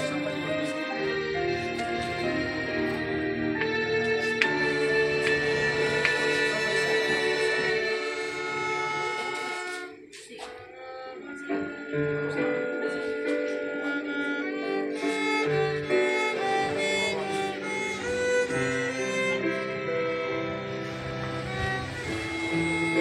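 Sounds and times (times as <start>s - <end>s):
violins playing long notes: 0.0s - 23.0s.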